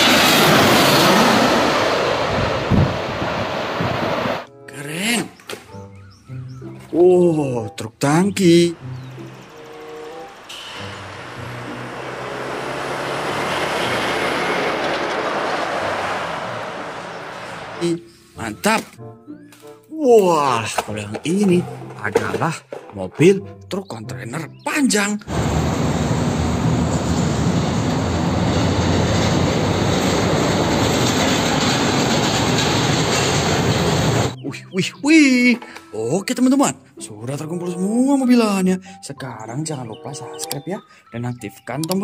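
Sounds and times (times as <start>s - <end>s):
truck passing close by: 0.0s - 4.4s, 8.7s - 18.1s, 25.3s - 34.4s
truck engines: 0.0s - 4.5s, 8.1s - 19.9s, 25.2s - 34.4s
tyres on road: 0.0s - 4.5s, 5.2s - 19.9s, 20.5s - 34.4s, 35.5s - 37.0s
tanker lorry driving past: 8.7s - 18.1s, 25.3s - 34.4s.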